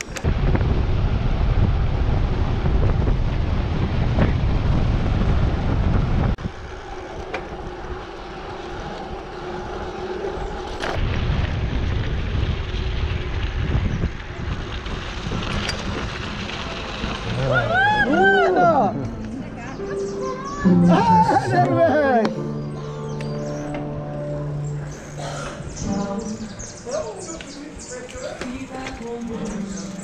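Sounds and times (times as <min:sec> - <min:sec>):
wind buffeting microphone: 0:00.0 - 0:19.1
bicycle tyres on dirt road: 0:00.0 - 0:20.1, 0:23.6 - 0:30.0.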